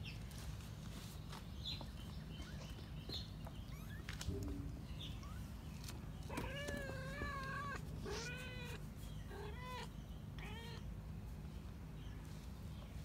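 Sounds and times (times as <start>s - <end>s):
kitten meowing: 6.3s - 10.9s.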